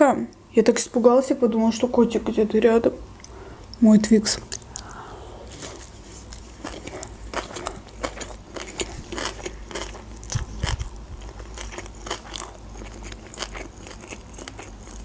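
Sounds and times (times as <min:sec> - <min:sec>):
person chewing food: 0:04.5 - 0:15.0.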